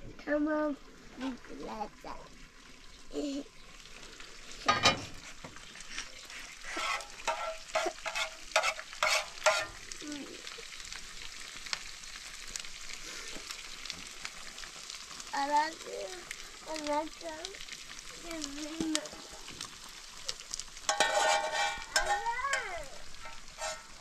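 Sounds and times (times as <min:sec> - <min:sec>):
fish sizzling in a pan: 0:00.8 - 0:24.0
metal clattering against pan: 0:04.6 - 0:05.2, 0:06.7 - 0:09.8, 0:20.8 - 0:24.0.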